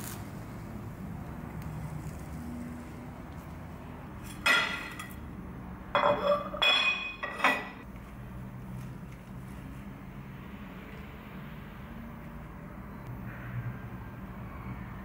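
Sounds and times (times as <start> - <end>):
plate and utensils clinking: 4.2 - 5.2, 5.9 - 7.8.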